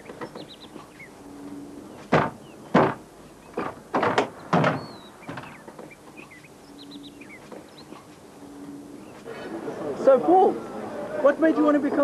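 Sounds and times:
faint bird chirps: 4.4 - 9.3.

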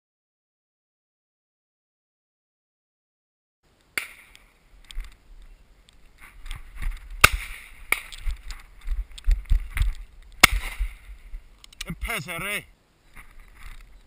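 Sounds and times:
sharp cracks: 3.8 - 5.2, 5.8 - 12.0
wind rumble: 4.5 - 12.1.

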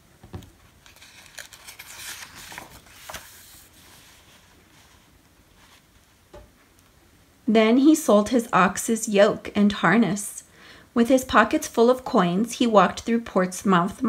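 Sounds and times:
book page rustling: 0.3 - 6.2
sharp paper crackle: 0.8 - 5.0.

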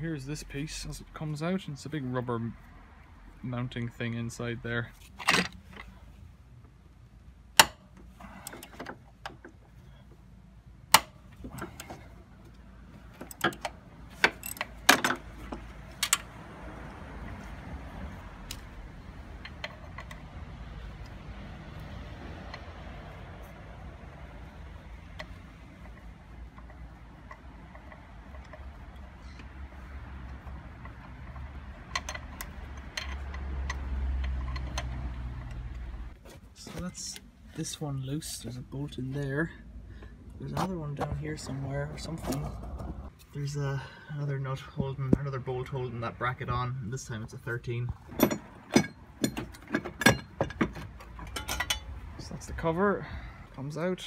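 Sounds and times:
wrench clinking on bolts: 13.2 - 15.2, 30.8 - 35.6, 48.1 - 52.0
steady low rumble: 34.5 - 54.0.

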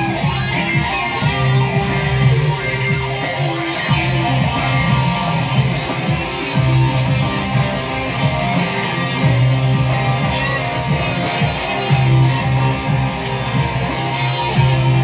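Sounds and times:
electric guitar playing: 0.0 - 15.0
ticking beat: 0.0 - 15.0.

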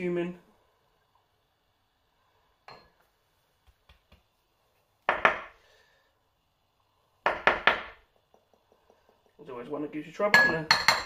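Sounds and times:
teaspoon tapping a bowl: 7.3 - 9.4, 10.3 - 11.0.

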